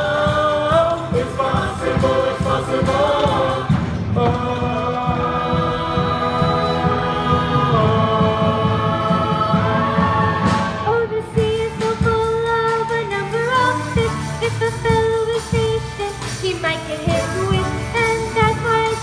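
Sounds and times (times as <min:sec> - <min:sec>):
voices singing: 0:00.0 - 0:15.0
stage musical accompaniment: 0:00.0 - 0:19.0.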